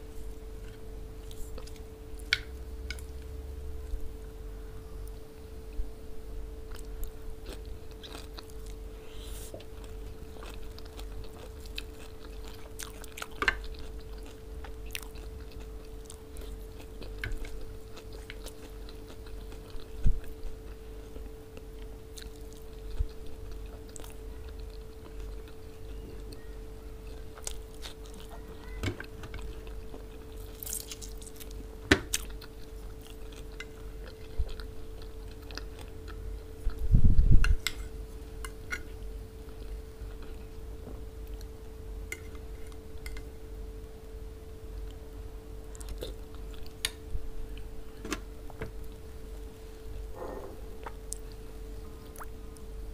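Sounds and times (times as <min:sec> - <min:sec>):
steady low hum: 0:00.0 - 0:52.9
chewing and biting food: 0:06.7 - 0:08.9, 0:09.5 - 0:26.4, 0:27.0 - 0:36.9, 0:45.7 - 0:47.7.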